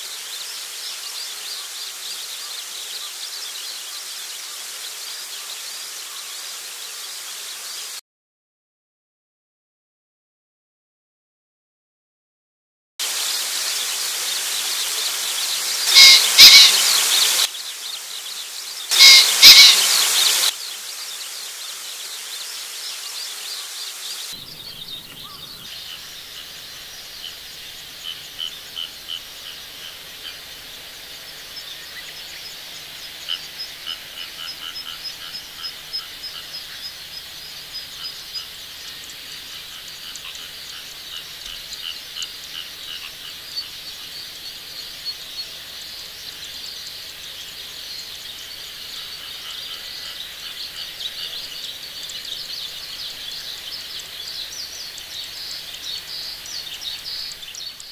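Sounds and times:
pheasant crowing: 0:15.9 - 0:17.5, 0:18.9 - 0:20.5.

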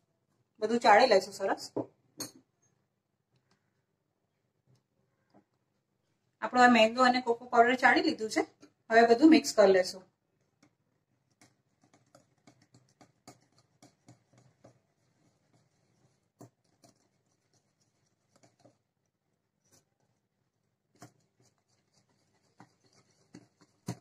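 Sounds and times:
whisk scraping glass bowl: 0:11.4 - 0:18.9, 0:20.8 - 0:24.0.

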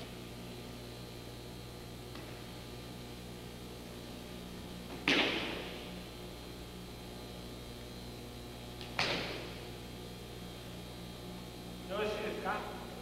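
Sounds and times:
electrical hum: 0:00.0 - 0:13.0
body slapping the mat: 0:04.9 - 0:05.9, 0:08.8 - 0:09.6.

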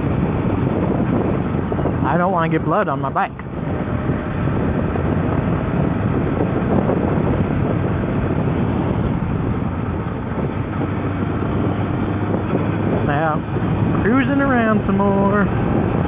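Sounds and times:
wind noise on microphone: 0:00.0 - 0:16.0
motorcycle engine running: 0:03.3 - 0:16.0.

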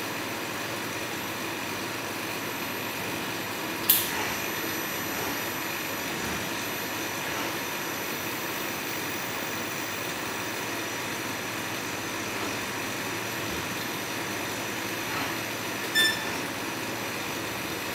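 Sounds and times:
short high-pitched tone: 0:15.9 - 0:16.4.

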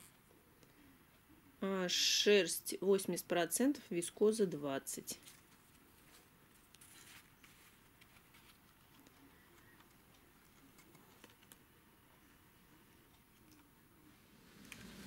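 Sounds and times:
faint fabric rustling: 0:05.0 - 0:15.0.

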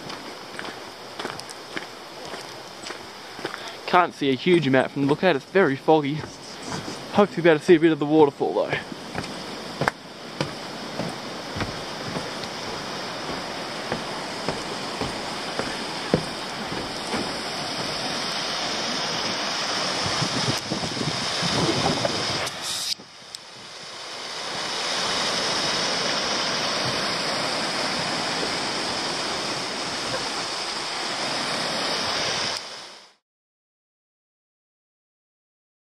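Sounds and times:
wind and rain rushing: 0:00.0 - 0:33.2
wind gusts knocking microphone: 0:08.7 - 0:23.1.

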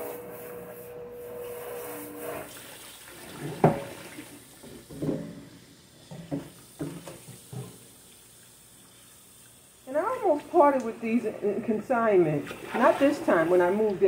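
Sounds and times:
tap water running into sink: 0:02.5 - 0:14.0.

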